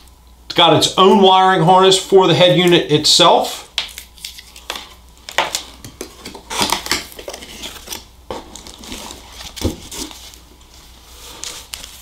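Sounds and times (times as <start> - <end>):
rustling packaging and paper: 3.9 - 12.0.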